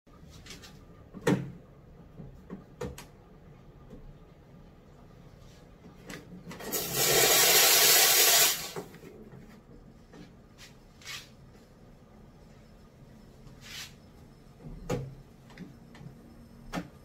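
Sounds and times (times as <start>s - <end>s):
loud steam hiss: 6.8s - 8.8s.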